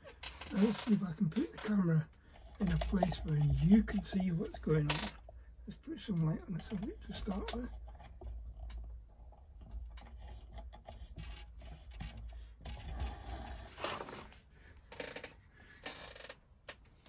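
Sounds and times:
objects clicking and knocking: 0:02.4 - 0:13.5.

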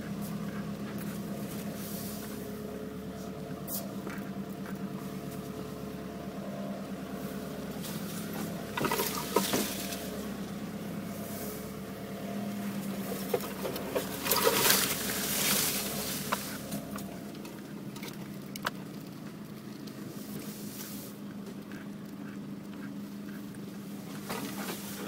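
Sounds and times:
branches scraping vehicle body: 0:00.0 - 0:25.0
engine running at low speed: 0:00.0 - 0:25.0.

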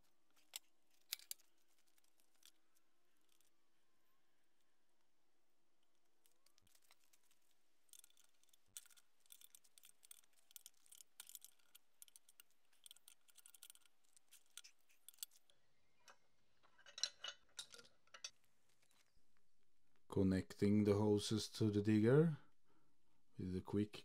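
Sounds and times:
clicks and clinks of hose fittings: 0:07.9 - 0:18.4.

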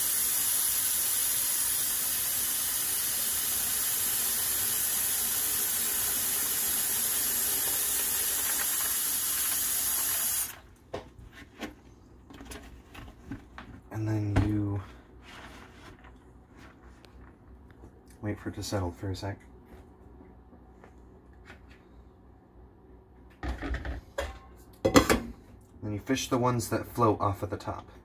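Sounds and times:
faucet running into plastic tub: 0:00.0 - 0:10.6.

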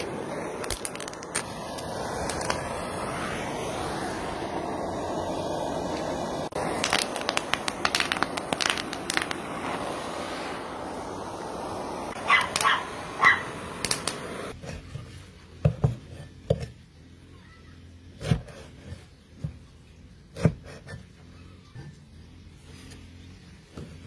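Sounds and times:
background hiss: 0:00.0 - 0:14.6
dog barking: 0:12.2 - 0:13.5.

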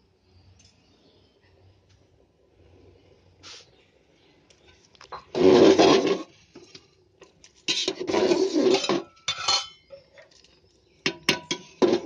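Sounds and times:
metal ladle scraping a pot: 0:05.1 - 0:06.7, 0:07.6 - 0:10.0, 0:11.1 - 0:12.0.

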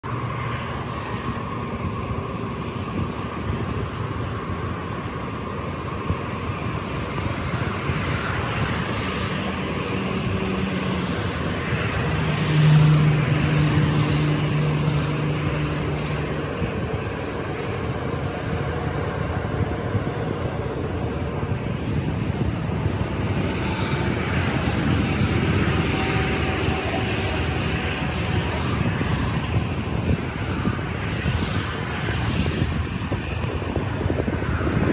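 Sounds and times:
vehicle rumble: 0:00.0 - 0:34.9
wind noise: 0:00.0 - 0:34.9
low droning tone: 0:09.1 - 0:30.8.

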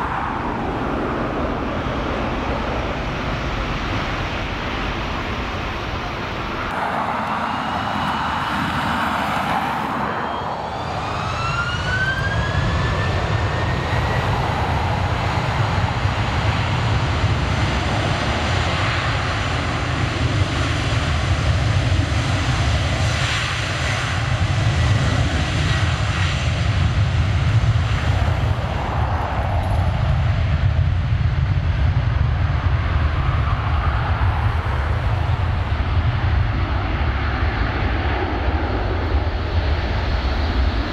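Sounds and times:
jet engines spooling up: 0:06.5 - 0:17.0.

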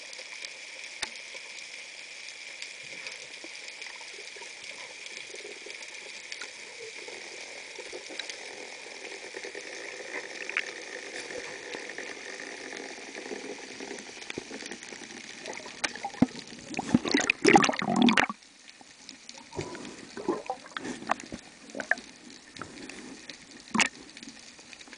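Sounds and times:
underwater hiss: 0:00.0 - 0:18.4, 0:19.3 - 0:24.4
faint clicks underwater: 0:00.2 - 0:01.6, 0:02.6 - 0:06.6, 0:14.0 - 0:24.9
water splashing and bubbling: 0:02.7 - 0:24.9.

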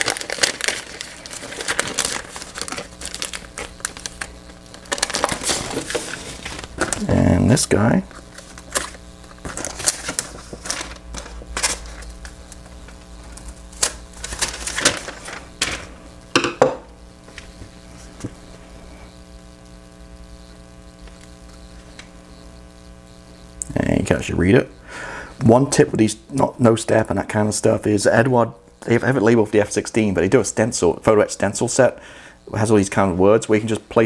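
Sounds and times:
paper sheets rustling: 0:00.0 - 0:07.1, 0:08.1 - 0:16.0
low steady hum: 0:00.0 - 0:34.0.

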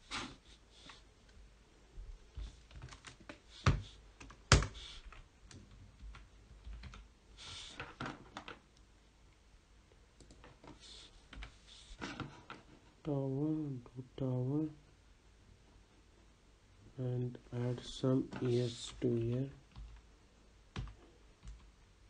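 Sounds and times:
computer keyboard typing: 0:02.7 - 0:07.0.

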